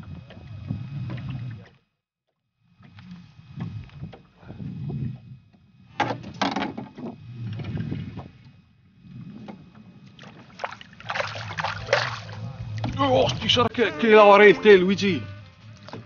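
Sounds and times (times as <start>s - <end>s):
water and wind rumbling: 0.0s - 1.8s, 2.7s - 16.0s.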